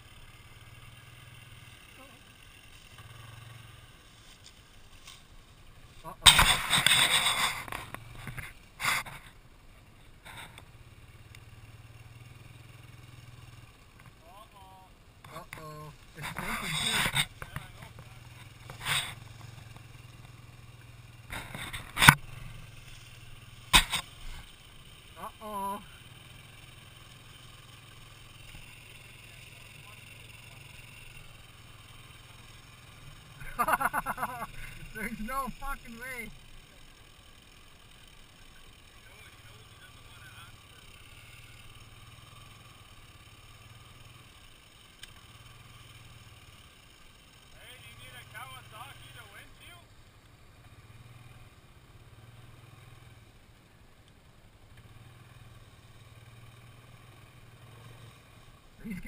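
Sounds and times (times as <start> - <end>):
atv engine idling: 0.0 - 59.0
sharp click: 23.7 - 24.1.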